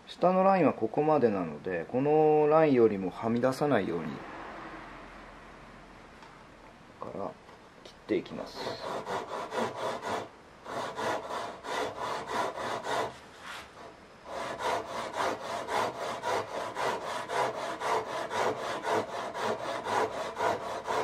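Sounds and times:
hand saw rasping through wood: 0:08.5 - 0:13.2, 0:13.8 - 0:21.0.

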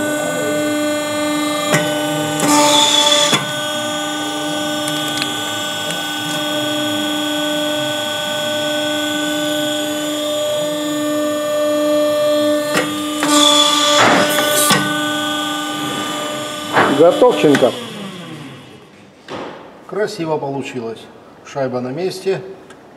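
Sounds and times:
crimping machine motor hum: 0:00.0 - 0:18.9
hydraulic hissing: 0:12.8 - 0:19.0.

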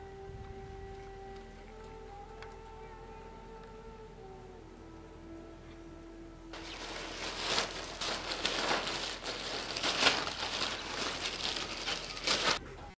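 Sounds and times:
rustling crackling noise: 0:06.5 - 0:12.6.

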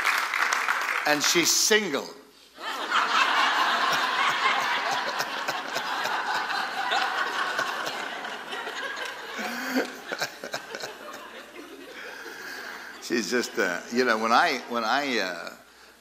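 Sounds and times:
crowd laughing: 0:02.6 - 0:14.2.

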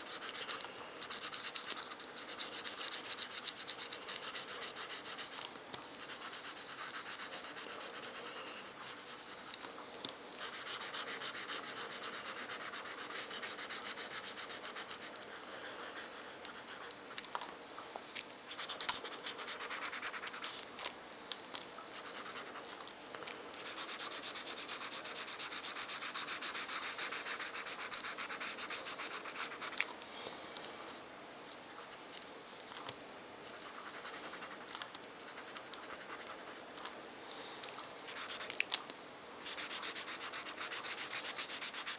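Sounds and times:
marker scratching on paper: 0:00.0 - 0:09.6, 0:10.4 - 0:17.0, 0:18.5 - 0:20.6, 0:21.9 - 0:22.6, 0:23.6 - 0:29.8, 0:33.5 - 0:36.6, 0:38.1 - 0:38.6, 0:39.4 - 0:41.9.

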